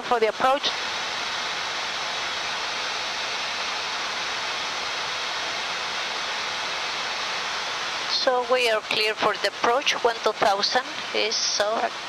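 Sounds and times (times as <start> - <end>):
cockpit airflow hiss: 0.1 - 12.0.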